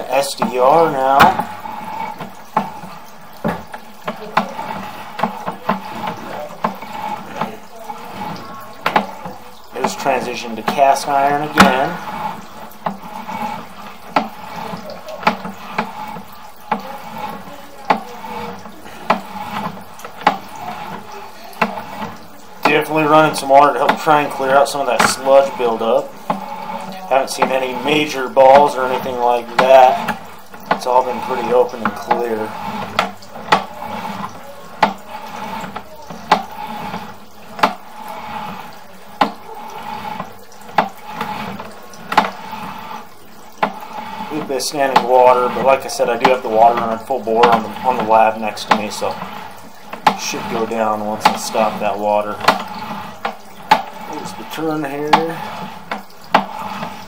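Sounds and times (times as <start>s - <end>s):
water running from faucet: 0.0s - 57.0s.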